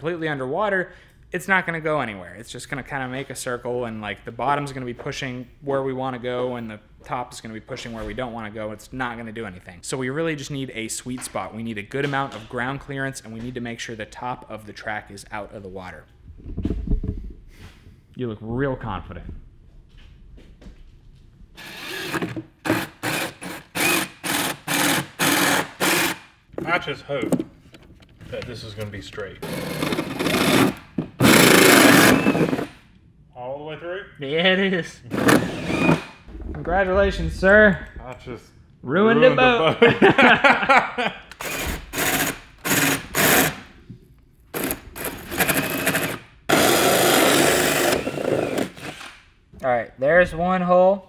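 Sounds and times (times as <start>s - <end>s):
cordless drill bursts: 21.6s - 26.3s, 29.4s - 32.8s, 35.1s - 36.2s, 41.4s - 43.6s, 44.6s - 49.2s
people laughing: 39.3s - 41.3s.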